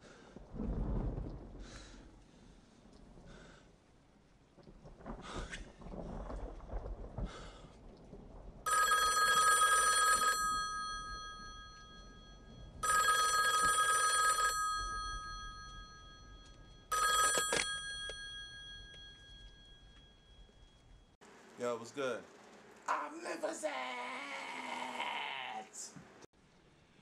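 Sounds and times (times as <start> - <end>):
desk telephone ringing: 8.7 - 21.0.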